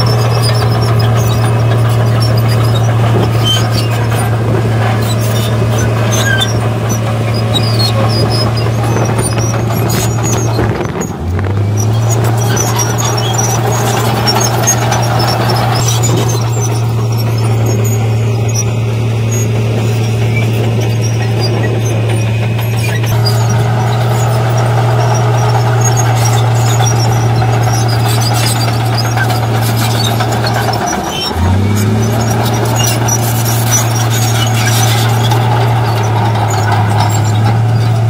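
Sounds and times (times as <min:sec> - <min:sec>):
diesel engine drone: 0:00.0 - 0:38.0
steel tracks squealing: 0:00.0 - 0:38.0.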